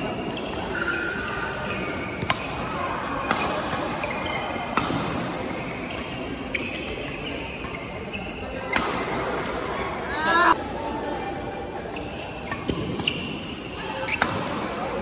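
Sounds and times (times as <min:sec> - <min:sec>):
shoes squeaking on court: 0:00.0 - 0:10.6, 0:12.0 - 0:14.8
racket hitting shuttlecock: 0:02.0 - 0:05.4, 0:08.7 - 0:09.6, 0:14.1 - 0:14.9.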